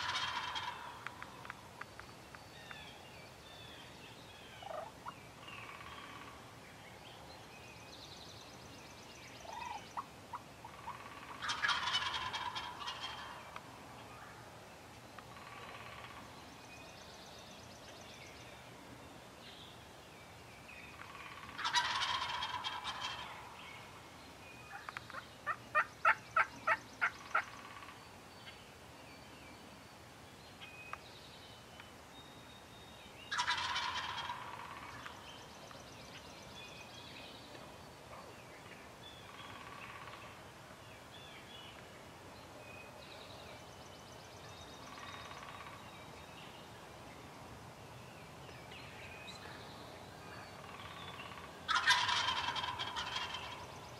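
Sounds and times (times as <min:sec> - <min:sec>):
turkey gobbling: 0:00.0 - 0:01.1, 0:04.6 - 0:04.9, 0:10.6 - 0:13.4, 0:21.2 - 0:23.4, 0:24.7 - 0:27.9, 0:33.3 - 0:35.1, 0:50.8 - 0:53.6
short turkey yelps: 0:10.8 - 0:13.3, 0:21.6 - 0:23.3, 0:51.7 - 0:53.4.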